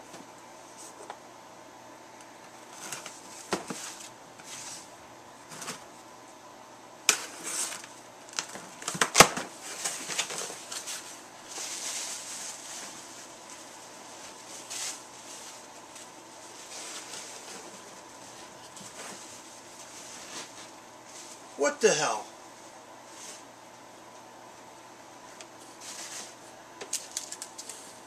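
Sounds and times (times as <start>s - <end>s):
cardboard rustling and scraping: 2.6s - 5.9s, 7.1s - 21.5s, 25.7s - 26.4s.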